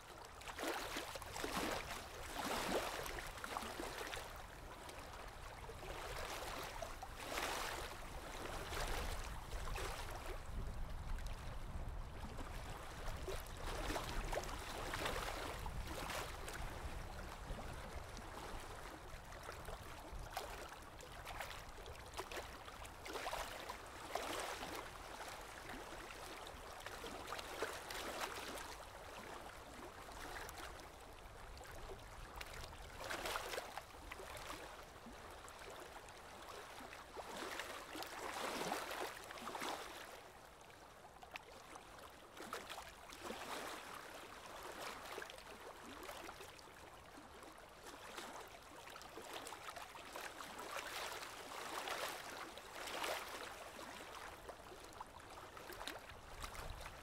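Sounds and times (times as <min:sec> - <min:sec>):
water rushing past a boat: 0:00.3 - 0:40.9.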